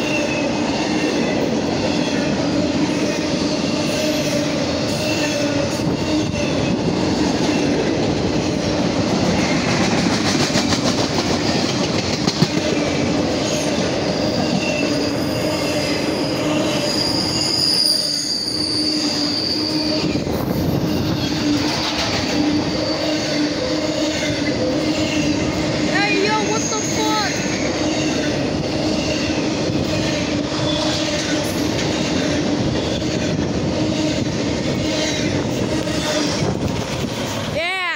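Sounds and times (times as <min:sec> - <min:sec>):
freight train wheels rumbling: 0:00.0 - 0:37.9
high wheel squeals: 0:13.6 - 0:31.7.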